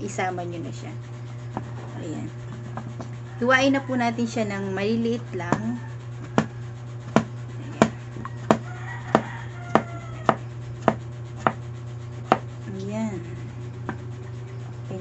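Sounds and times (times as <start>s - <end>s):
knife chopping on cutting board: 6.3s - 6.5s, 7.1s - 11.6s, 12.3s - 12.5s.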